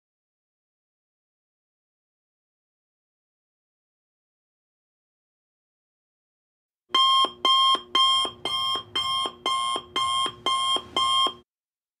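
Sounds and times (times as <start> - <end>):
electronic timer alarm beeps: 6.9 - 11.4.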